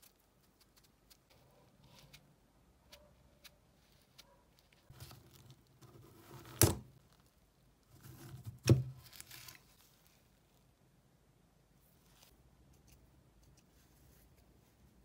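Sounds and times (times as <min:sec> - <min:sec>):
rustling and scraping: 0:02.9 - 0:10.6.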